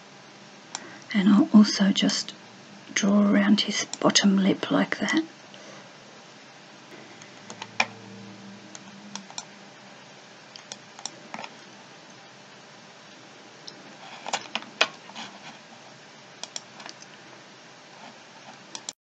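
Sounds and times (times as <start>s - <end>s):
faint background noise: 0.0s - 19.0s
mouse and keyboard clicks: 16.4s - 17.1s.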